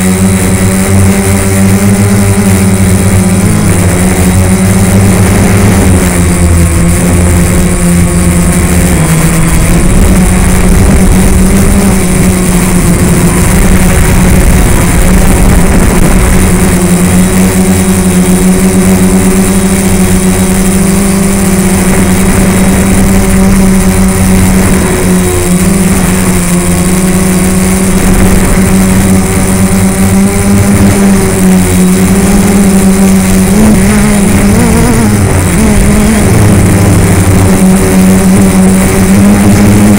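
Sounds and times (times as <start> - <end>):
quadcopter motors buzzing: 0.0 - 39.9.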